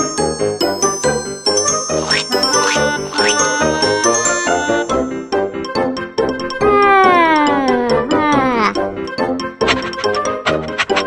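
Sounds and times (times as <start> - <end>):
upbeat cartoon music: 0.0 - 11.0.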